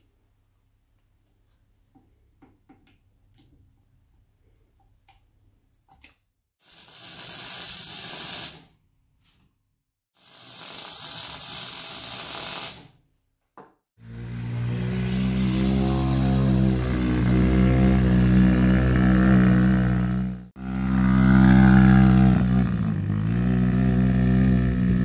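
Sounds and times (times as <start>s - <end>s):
welding hiss: 6.6s - 8.7s, 10.2s - 12.9s
small engine running: 14.0s - 25.0s.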